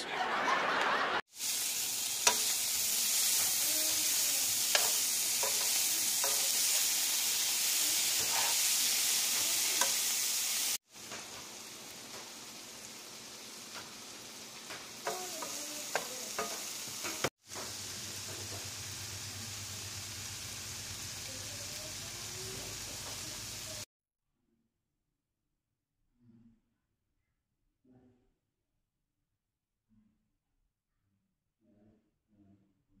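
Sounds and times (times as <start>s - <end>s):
greens sizzling in a pan: 1.3s - 23.9s.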